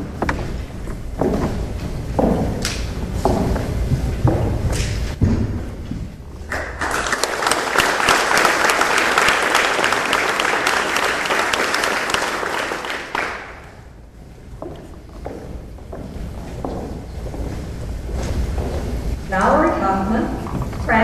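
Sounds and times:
audience applauding: 6.5s - 13.8s.

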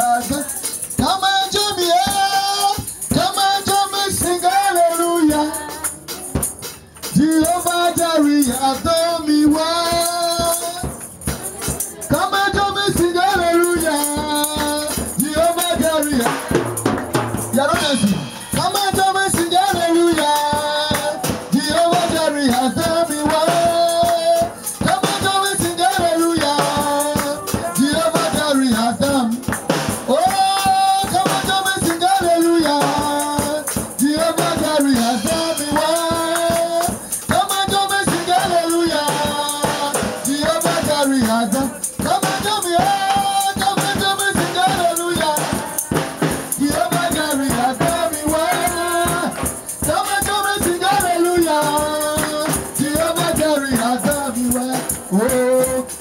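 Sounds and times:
rattling hand percussion: 0.0s - 56.0s
voices singing a chorus: 30.2s - 55.4s.

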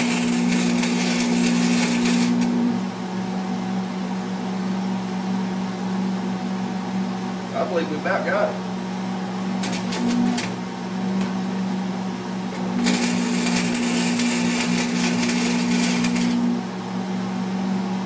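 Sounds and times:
welding arc crackling: 0.0s - 2.8s, 9.6s - 10.6s, 12.6s - 16.6s
steady hum: 0.0s - 18.0s.

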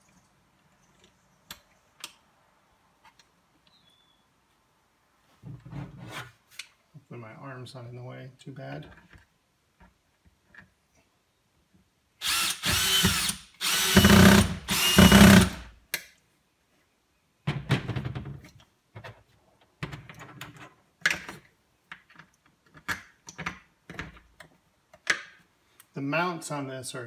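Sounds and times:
cordless drill motor whine: 12.2s - 15.6s.

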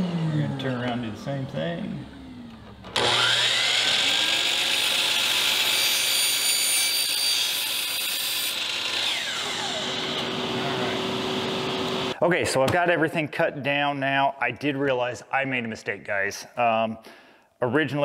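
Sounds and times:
saw spinning down: 0.0s - 12.2s
miter saw cutting plastic: 2.3s - 12.2s.

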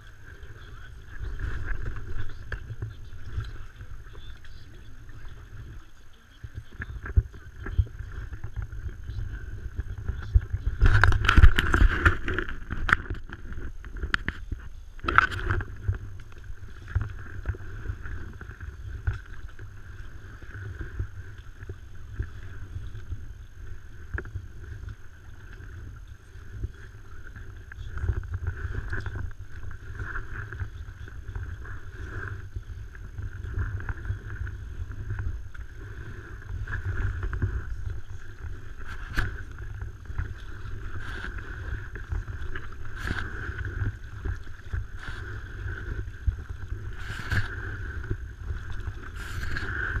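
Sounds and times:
paddle strokes in water: 0.0s - 50.0s
steady low rumble: 0.0s - 50.0s
water splashing and lapping: 0.0s - 50.0s.

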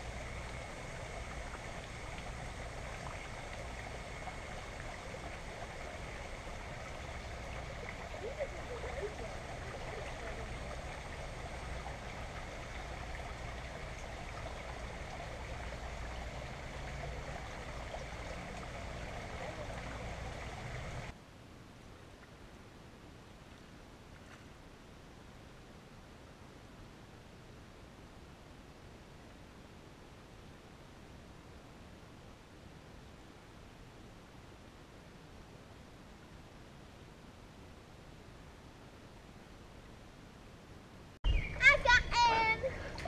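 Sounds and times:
river water trickling over rocks: 0.0s - 21.2s.

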